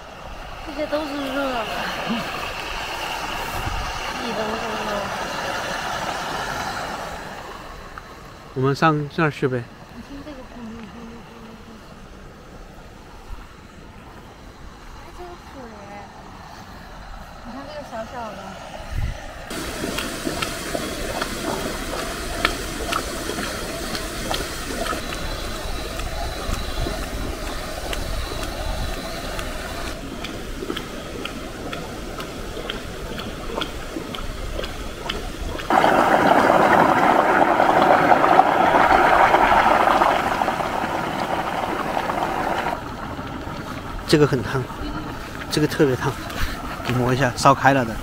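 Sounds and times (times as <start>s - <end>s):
fumaroles hissing steam: 0.0s - 48.0s
ticks and pops from vents: 19.6s - 43.6s.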